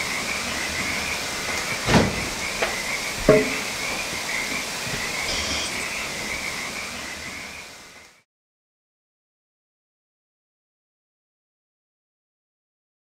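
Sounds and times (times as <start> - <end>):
steam engine running: 0.0 - 6.7
sharp knocks: 1.9 - 3.7
steady high-pitched tone: 4.9 - 8.2.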